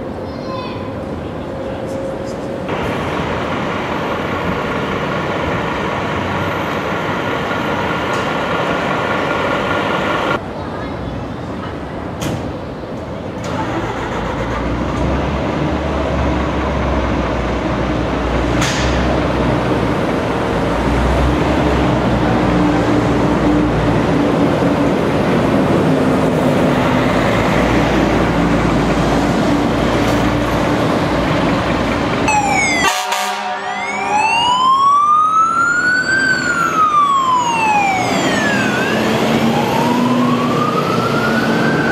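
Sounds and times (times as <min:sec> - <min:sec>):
diesel engine running: 0:02.6 - 0:10.4, 0:13.4 - 0:33.2
siren chirps: 0:32.2 - 0:41.9
electronic siren wailing: 0:32.3 - 0:41.9.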